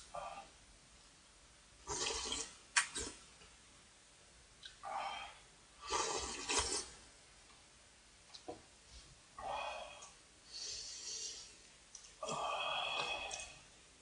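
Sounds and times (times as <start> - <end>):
person slurping soup: 1.9 - 3.2, 5.9 - 7.0.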